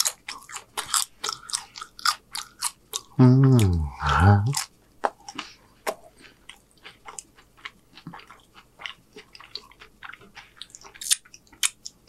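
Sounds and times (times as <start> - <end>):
person chewing crunchy chips: 0.0 - 12.0.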